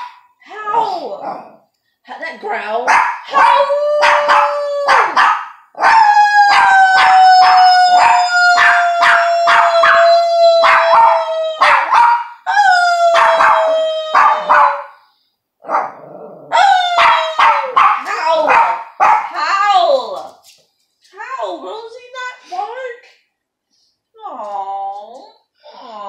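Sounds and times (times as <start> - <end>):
small dog howling and yipping: 3.3 - 14.9, 16.5 - 17.9
person howling: 5.9 - 11.8.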